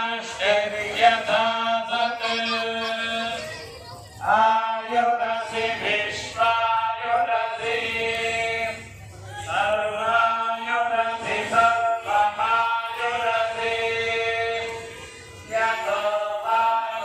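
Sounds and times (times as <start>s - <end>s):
voices chanting: 0.0s - 17.0s.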